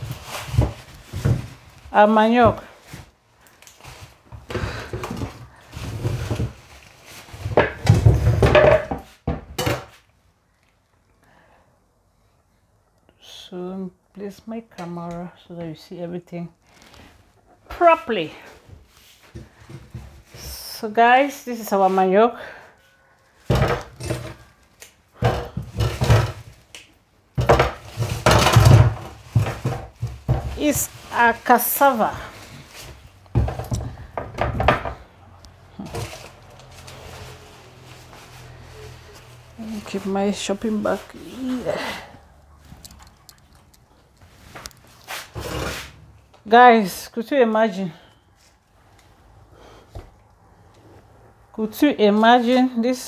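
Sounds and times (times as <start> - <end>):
plastic bag rustling: 0.0 - 7.6, 27.7 - 34.1, 35.6 - 46.1
things knocked and set down: 7.3 - 10.0, 23.5 - 24.4, 25.2 - 26.6, 27.4 - 30.8, 32.8 - 35.1.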